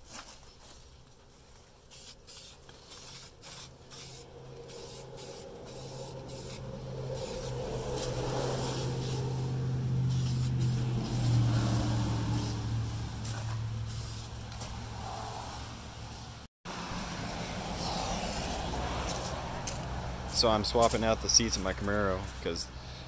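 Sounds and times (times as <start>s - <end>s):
aerosol can spraying: 1.9s - 9.4s, 10.0s - 12.7s, 13.3s - 14.4s
low engine drone: 4.2s - 20.4s.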